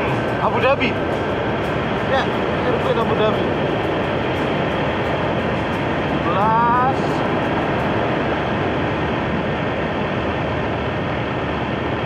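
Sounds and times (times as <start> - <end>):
wind and road noise: 0.0 - 12.0.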